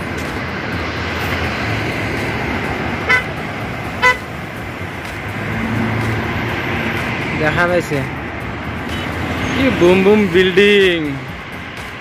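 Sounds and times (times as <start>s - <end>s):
road traffic passing: 0.0s - 12.0s
car horn toots: 3.0s - 3.4s, 4.0s - 4.3s, 8.9s - 9.6s.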